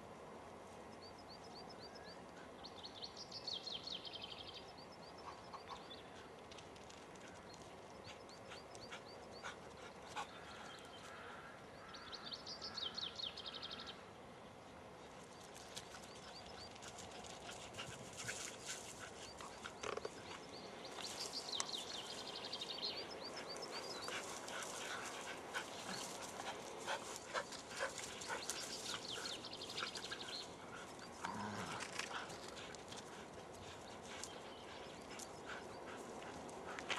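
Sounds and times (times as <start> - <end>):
dogs panting: 7.1 - 10.8, 15.6 - 36.9
paws scuffling on dry grass: 15.2 - 36.9
dog growling: 31.2 - 31.9.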